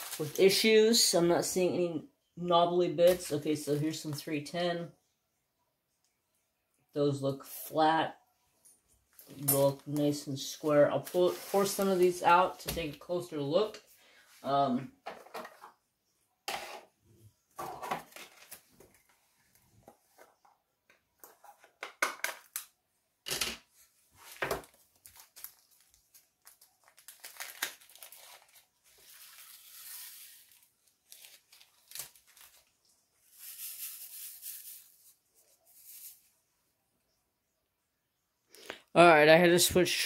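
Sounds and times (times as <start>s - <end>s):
plastic bag crinkling: 24.2s - 34.9s
beads poured into plastic tray: 33.2s - 35.1s.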